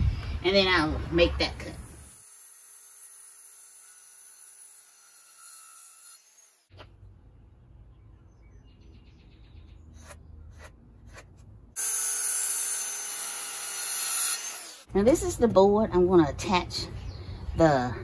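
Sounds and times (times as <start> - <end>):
circular saw cutting wood: 1.6 - 6.7, 10.0 - 14.9
pencil scratching on wood: 10.0 - 11.3.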